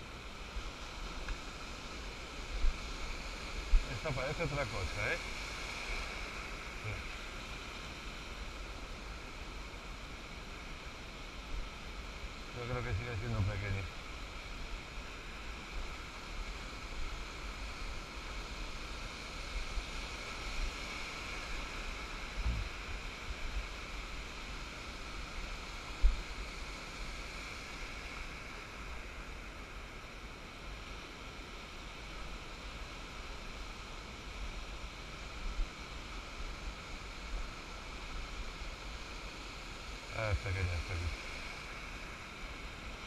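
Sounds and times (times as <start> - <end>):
surf washing over sand: 0.0 - 43.0
wind rumbling on microphone: 19.4 - 23.8.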